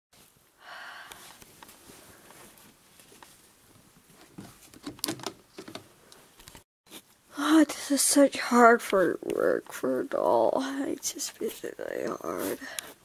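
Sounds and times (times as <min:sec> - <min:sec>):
plastic clicks and knocks: 0:04.2 - 0:05.8
plastic clatter: 0:04.2 - 0:05.9.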